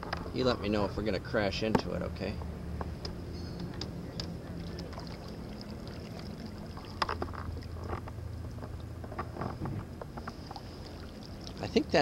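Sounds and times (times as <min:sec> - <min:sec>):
low hum: 0:00.0 - 0:12.0
paddle dipping and dripping: 0:02.8 - 0:12.0
water splashes: 0:04.2 - 0:09.0, 0:10.2 - 0:12.0.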